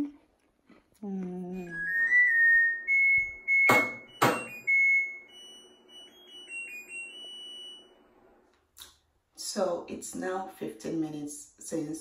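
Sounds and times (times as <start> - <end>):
washing machine beeping melody: 1.6 - 8.3.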